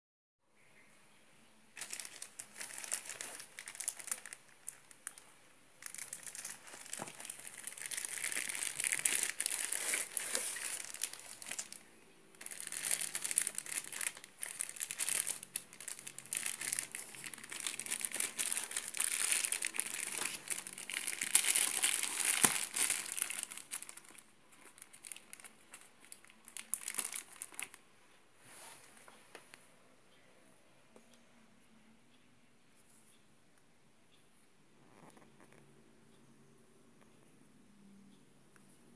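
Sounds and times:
plastic shrink-wrap crinkling: 1.8 - 27.8.

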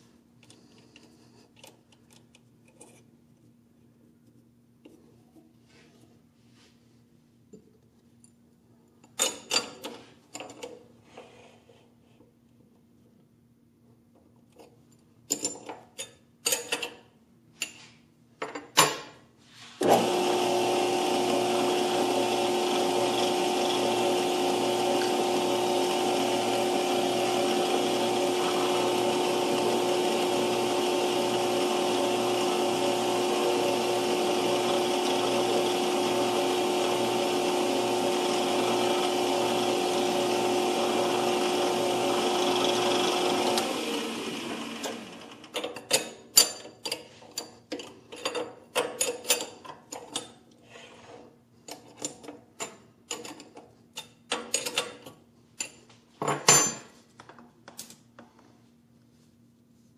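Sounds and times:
small metal lathe whining: 19.8 - 45.6.

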